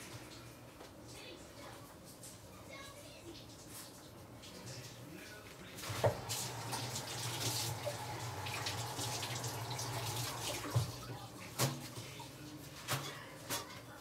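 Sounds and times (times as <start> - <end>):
tap running into sink: 5.8 - 11.0.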